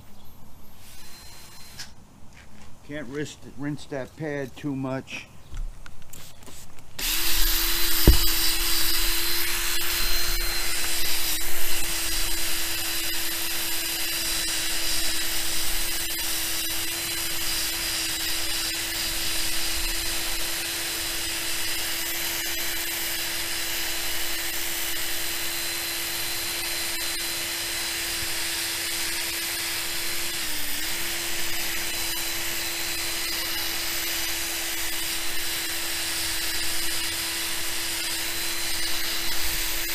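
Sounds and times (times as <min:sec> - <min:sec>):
electric drill motor hum: 0:00.6 - 0:02.0, 0:07.0 - 0:39.9
sanding pad rubbing hiss: 0:06.1 - 0:11.7
brief knock: 0:08.0 - 0:08.3.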